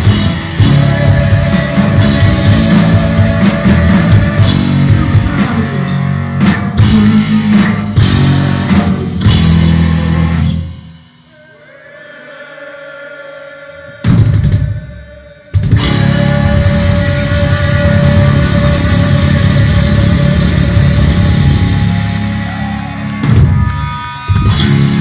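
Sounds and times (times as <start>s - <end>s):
heavy metal band playing live: 0.0s - 11.9s, 13.9s - 25.0s
heavy drum hits: 14.0s - 22.0s.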